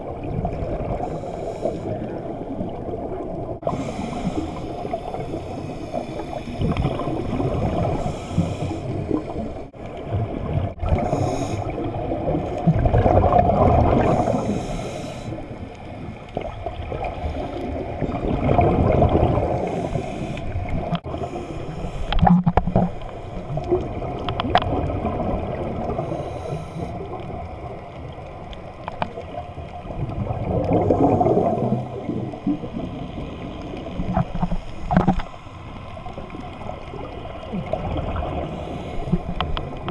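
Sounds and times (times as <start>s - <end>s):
low underwater noise: 0.0s - 39.9s
regulator bubbles gurgling: 0.0s - 39.9s.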